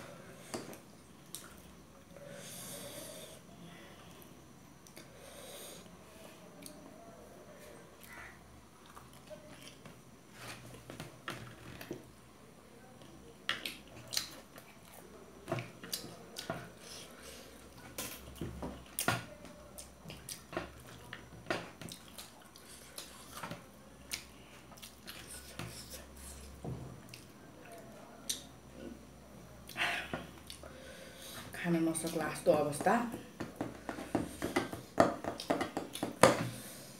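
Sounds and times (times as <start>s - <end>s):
people chewing: 0.5s - 3.0s, 7.8s - 12.1s, 13.0s - 29.0s.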